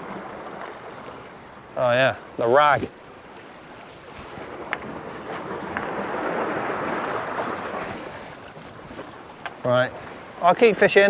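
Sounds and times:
small waves washing against rocks: 1.9 - 10.2.

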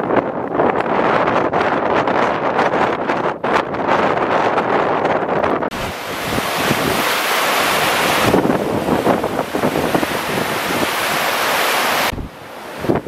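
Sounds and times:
wind buffeting microphone: 0.0 - 13.0
river rushing and churning: 5.7 - 13.0.

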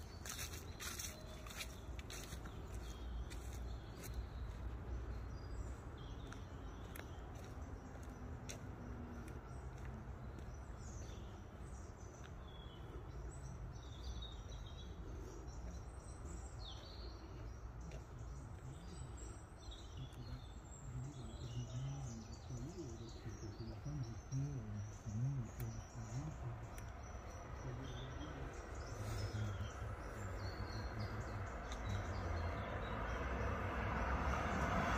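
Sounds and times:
low outdoor rumble: 0.0 - 34.9
small birds chirping: 0.0 - 34.9.

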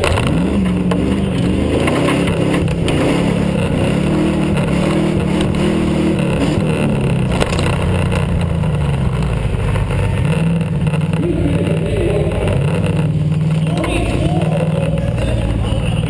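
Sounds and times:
heavy rumble over dirt: 0.0 - 16.0
truck engine revving under load: 0.0 - 16.0.

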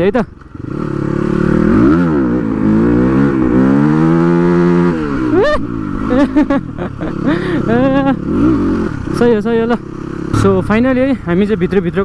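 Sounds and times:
dirt bike engine revving: 0.4 - 12.0.

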